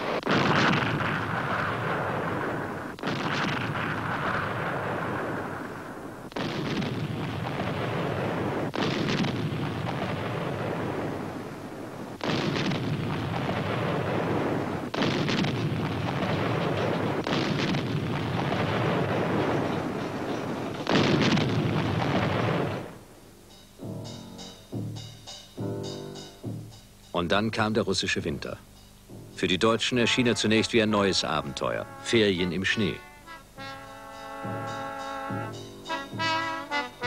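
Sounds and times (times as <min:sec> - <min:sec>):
artillery firing: 0:00.0 - 0:23.1, 0:30.0 - 0:37.0
long rolling rumble: 0:00.7 - 0:23.2.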